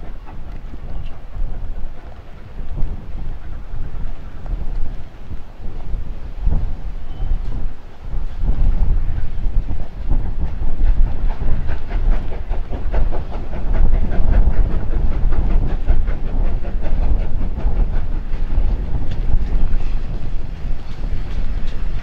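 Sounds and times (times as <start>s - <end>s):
carriages clattering on rails: 0.0s - 22.0s
deep rumble: 0.0s - 22.0s
steam locomotive exhaust beats: 0.0s - 22.0s
hiss of escaping steam: 5.4s - 22.0s.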